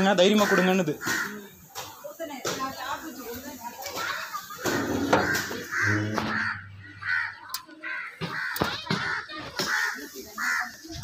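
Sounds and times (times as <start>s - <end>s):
crows cawing: 0.2s - 1.6s, 5.0s - 11.0s.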